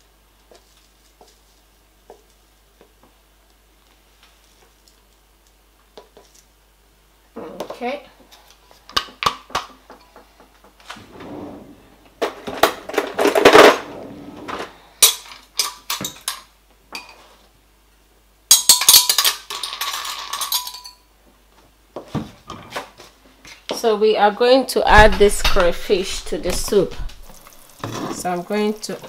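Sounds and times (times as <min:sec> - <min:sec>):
plastic rustling: 0:24.9 - 0:29.0.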